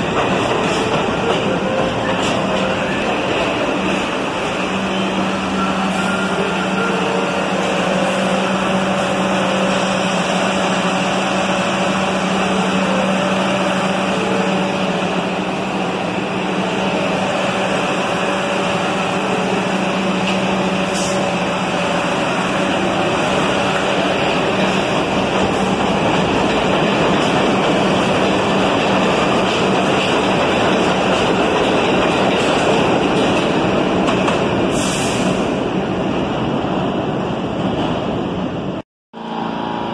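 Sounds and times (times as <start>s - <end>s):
train wheels rushing on rails: 0.0s - 38.8s.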